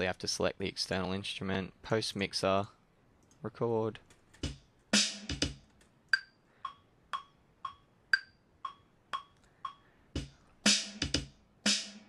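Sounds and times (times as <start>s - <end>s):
drum machine kick and snare: 4.4s - 6.3s, 10.2s - 12.0s
metronome ticking: 4.4s - 11.3s.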